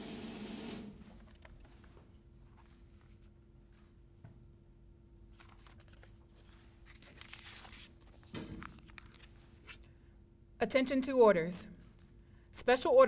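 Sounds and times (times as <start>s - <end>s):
faint steady hum: 0.0s - 13.0s
soft rustling and shuffling: 1.1s - 4.4s, 5.3s - 9.9s.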